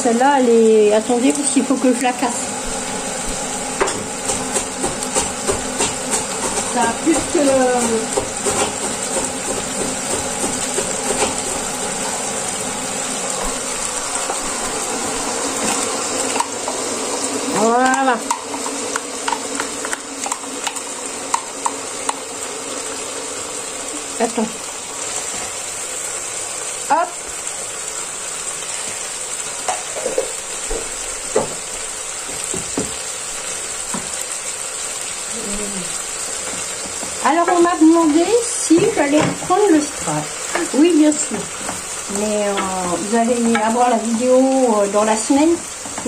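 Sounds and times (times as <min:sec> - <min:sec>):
pan simmering with bubbling hiss: 0:00.0 - 0:46.0.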